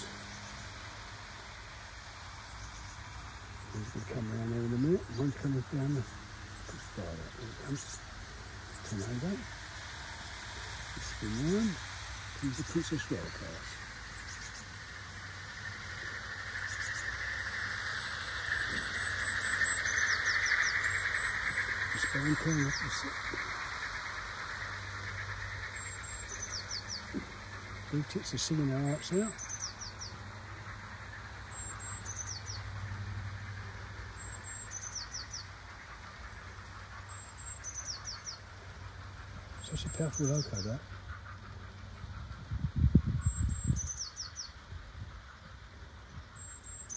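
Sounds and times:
model train whirring on rails: 0.0 - 42.4
low steady hum: 0.0 - 46.9
bird chirps: 2.3 - 44.6, 46.1 - 46.9.

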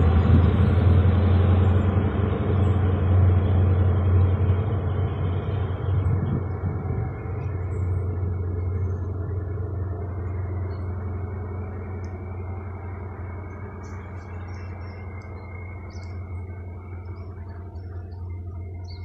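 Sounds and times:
diesel train engine drone: 0.0 - 19.0
birds chirping: 13.4 - 19.0.

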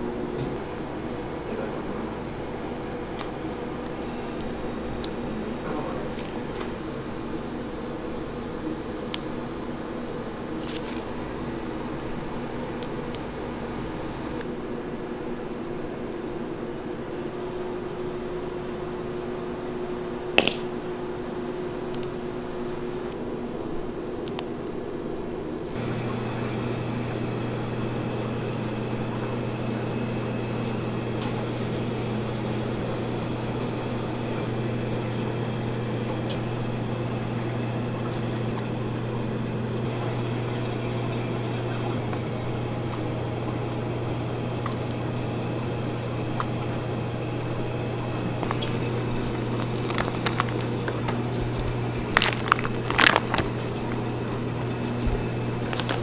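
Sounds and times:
kitchen equipment hum: 0.0 - 23.5, 25.3 - 56.0.

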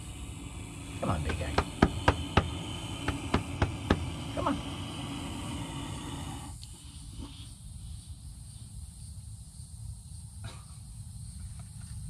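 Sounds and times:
lizard hissing: 0.0 - 7.6
steady low rumble: 0.0 - 8.3.

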